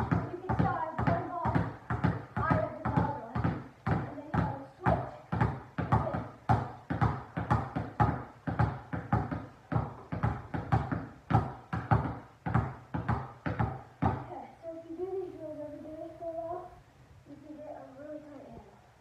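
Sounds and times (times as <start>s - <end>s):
basketballs bouncing on hardwood floor: 0.0s - 14.3s.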